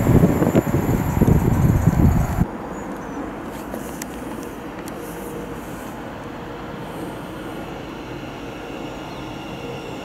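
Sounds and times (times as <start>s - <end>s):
wind rumble on microphone: 0.0s - 2.5s
distant train: 0.0s - 10.0s
outdoor railway platform noise: 0.0s - 10.0s.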